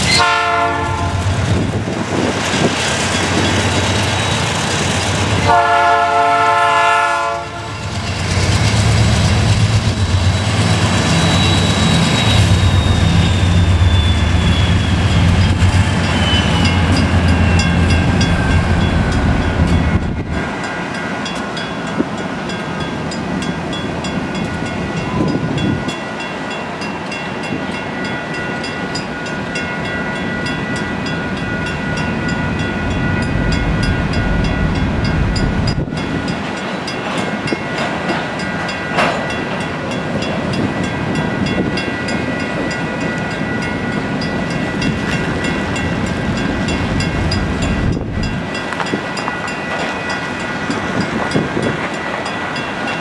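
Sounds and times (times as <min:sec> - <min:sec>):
locomotive horn: 0:00.0 - 0:01.4, 0:05.4 - 0:07.8
crossing bell ringing: 0:02.9 - 0:08.4, 0:09.8 - 0:53.0.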